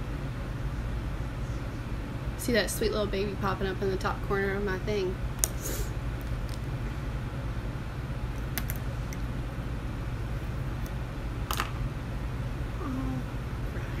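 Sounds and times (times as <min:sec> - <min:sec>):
steady low hum: 0:00.0 - 0:14.0
makeup brushes clicking and tapping: 0:08.4 - 0:08.8.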